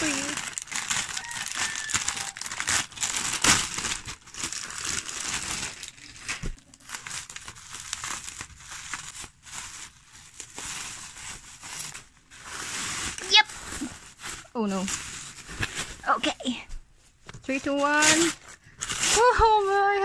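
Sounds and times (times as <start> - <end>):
scissors cutting wrap: 0.0 - 9.2, 17.9 - 19.6
packing tape pulled off: 0.0 - 16.0, 18.0 - 19.6
bubble wrap crackling: 0.0 - 20.0.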